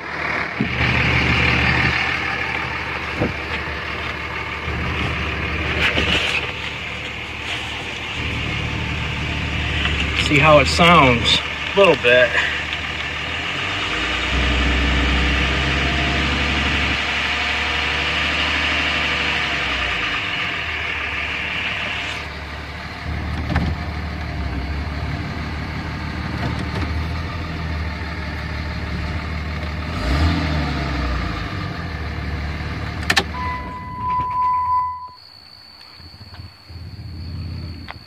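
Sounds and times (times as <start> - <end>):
diesel engine idling: 0.0 - 38.0
steady electronic tone: 33.3 - 38.0.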